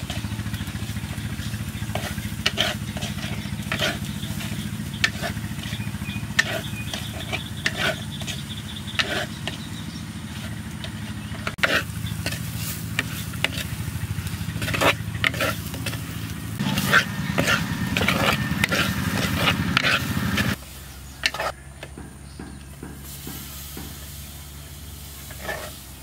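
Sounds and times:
low motor-like hum: 0.0 - 26.0
spoon scraping clay pot: 1.8 - 13.8, 14.5 - 20.6, 21.2 - 21.6, 25.2 - 25.9
light sizzling: 10.2 - 21.5, 23.0 - 26.0.

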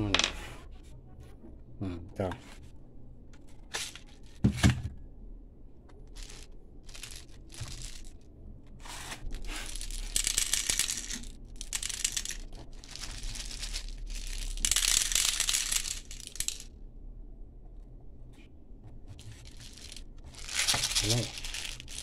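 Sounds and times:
plastic crinkling and scraping: 12.3 - 15.1, 19.2 - 22.0.

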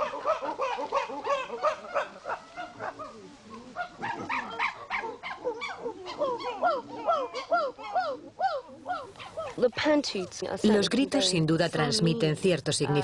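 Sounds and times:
chimpanzees hooting: 0.0 - 9.6.

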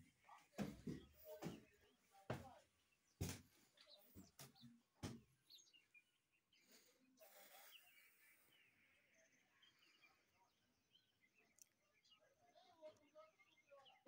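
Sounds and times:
footsteps on wooden boards: 0.0 - 2.6, 3.2 - 5.3
faint bird chirps: 2.9 - 14.0.

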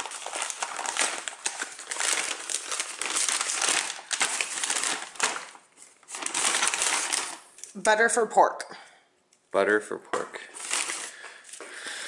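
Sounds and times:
paper bag crinkling: 0.0 - 7.6, 10.5 - 12.0.

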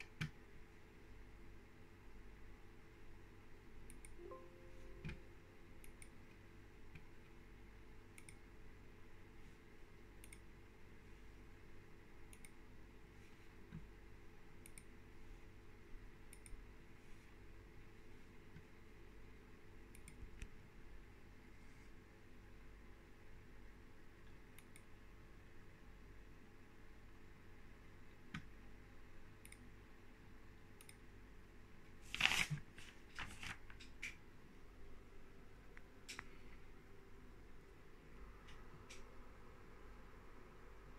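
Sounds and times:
computer mouse clicks: 3.8 - 4.2, 5.8 - 7.4, 8.1 - 8.5, 10.2 - 10.6, 12.2 - 12.6, 14.5 - 15.0, 16.2 - 16.7, 19.9 - 20.6, 24.2 - 25.0, 28.1 - 28.5, 29.4 - 29.8, 30.7 - 31.1, 38.4 - 39.2
steady low hum: 33.8 - 40.9.

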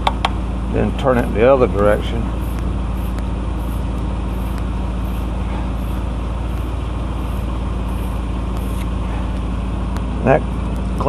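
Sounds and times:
engine idling: 0.0 - 11.0
wire brush scraping battery post: 2.4 - 9.0.

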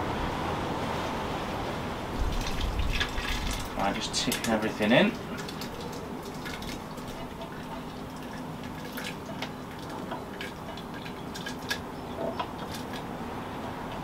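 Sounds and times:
thick sauce dripping and plopping: 2.3 - 13.0.

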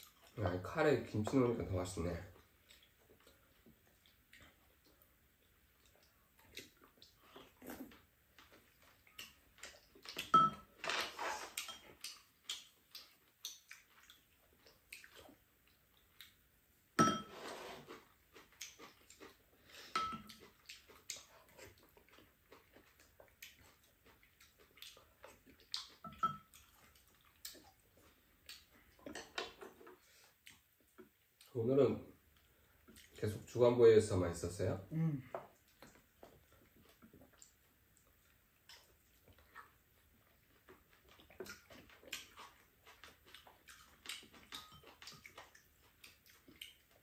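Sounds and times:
utensils clinking on ceramic bowls: 10.3 - 10.7, 17.0 - 17.4, 20.0 - 20.3, 26.1 - 26.5.

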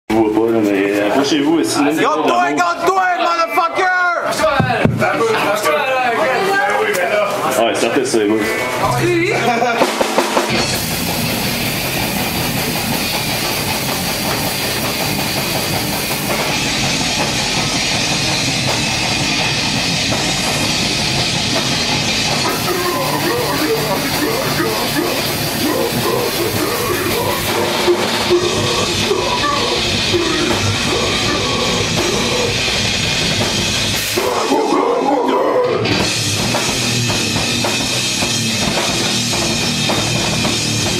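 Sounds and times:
distorted electric guitars: 8.4 - 40.9
drum kit with cymbals: 8.9 - 34.8, 35.6 - 40.9.

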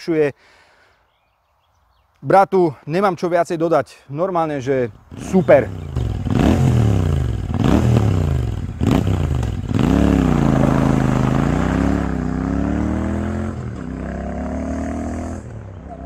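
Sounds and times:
motorcycle engine accelerating: 5.1 - 16.0.

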